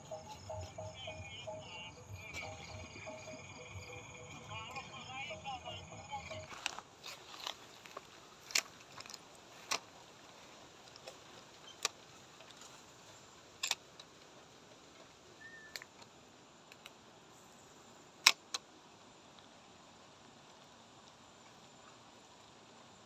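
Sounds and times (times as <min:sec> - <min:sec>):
faint chirp: 0:00.0 - 0:06.5, 0:15.4 - 0:15.9
faint steady hiss: 0:00.0 - 0:23.0.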